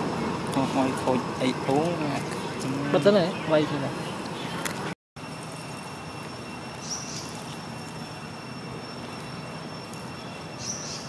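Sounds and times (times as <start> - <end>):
outdoor background noise: 0.0 - 11.0
thin high whine: 4.4 - 11.0.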